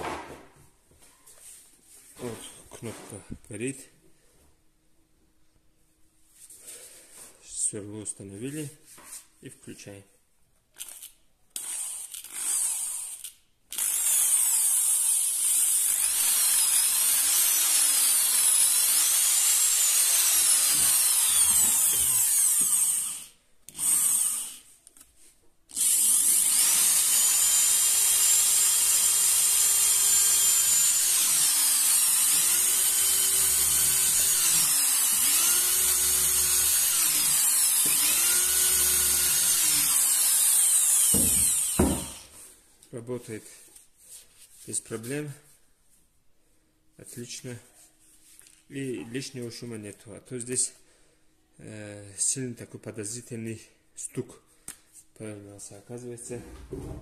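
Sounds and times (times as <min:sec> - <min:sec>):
electric drill motor whining: 0:11.6 - 0:24.6, 0:25.7 - 0:42.2.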